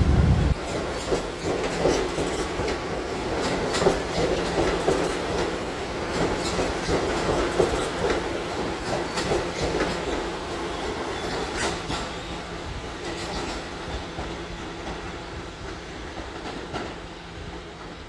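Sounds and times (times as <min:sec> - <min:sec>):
subway train wheels clicking: 0:00.0 - 0:18.0
train rumble: 0:00.0 - 0:18.0.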